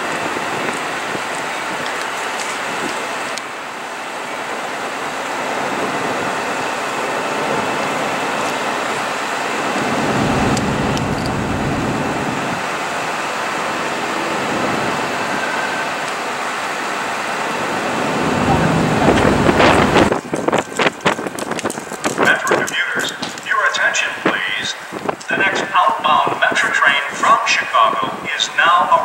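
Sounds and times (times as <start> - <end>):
train running on tracks: 0.0 - 29.0
low rumble: 9.8 - 12.6, 17.6 - 20.7.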